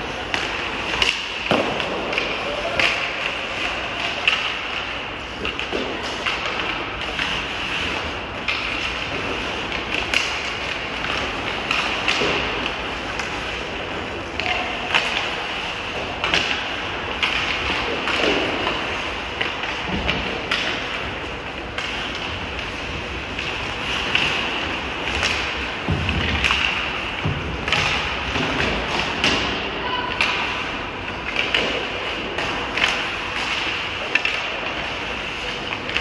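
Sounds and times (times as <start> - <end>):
hockey sticks clacking on puck: 0.0 - 36.0
skate blades scraping ice: 0.0 - 36.0.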